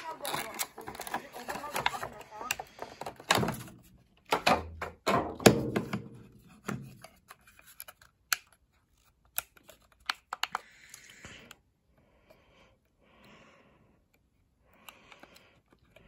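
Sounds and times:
plastic radio being handled: 0.0s - 11.6s.

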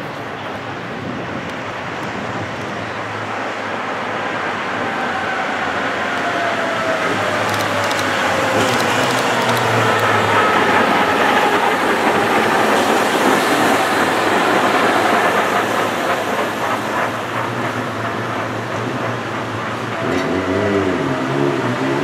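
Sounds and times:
tram wheels rolling on rails: 0.0s - 22.0s.

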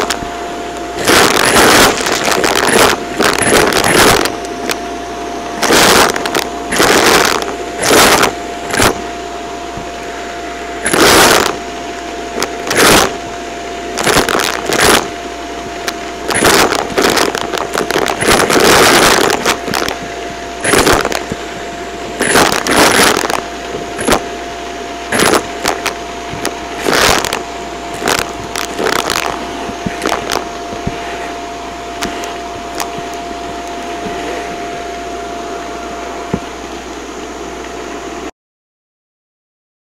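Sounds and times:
vacuum cleaner whining: 0.0s - 37.2s
debris rattling through hose: 1.0s - 4.8s, 10.8s - 11.6s, 12.3s - 13.2s, 14.0s - 15.2s, 15.8s - 24.4s, 25.1s - 31.1s.

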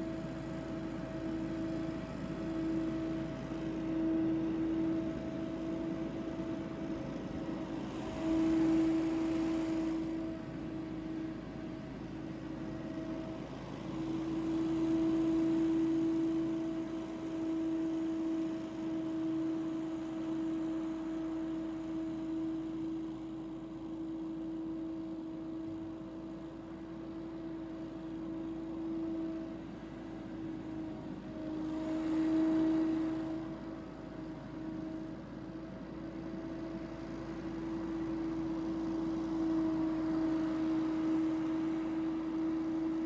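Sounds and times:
leaf blower droning: 0.0s - 43.0s.

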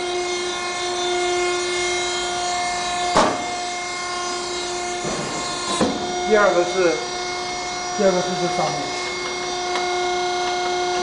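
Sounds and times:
hydraulic power unit running: 0.0s - 11.0s.

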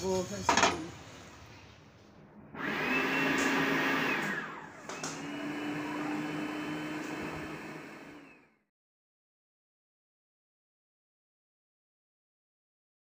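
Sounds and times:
food processor motor whining: 2.5s - 8.7s.

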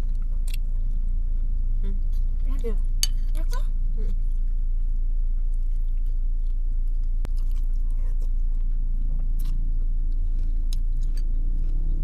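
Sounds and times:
person chewing and eating: 0.0s - 3.3s, 4.1s - 12.0s
low hum inside car: 0.0s - 12.0s.

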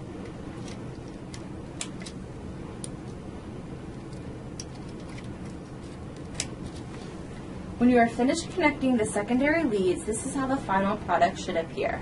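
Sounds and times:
low background noise: 0.0s - 12.0s
connectors clicking into place: 0.2s - 2.2s, 3.9s - 6.6s.

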